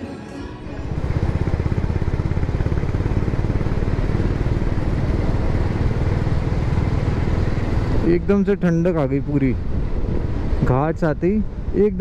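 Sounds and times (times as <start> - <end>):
motorcycle engine pulsing: 0.6 - 11.9
wind noise on microphone: 9.5 - 12.0.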